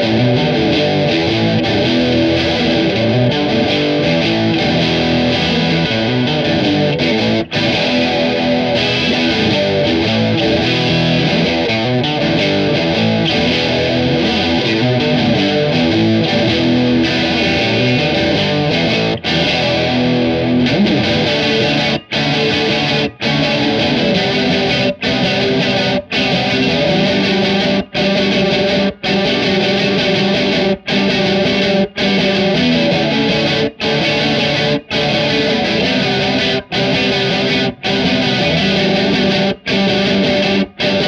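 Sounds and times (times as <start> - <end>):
distorted electric guitar riff: 0.0 - 41.0.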